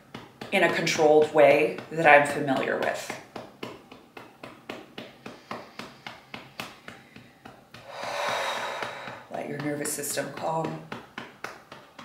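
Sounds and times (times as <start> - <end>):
hand tapping on ribcage: 0.0 - 12.0
breath blown out: 7.8 - 9.3.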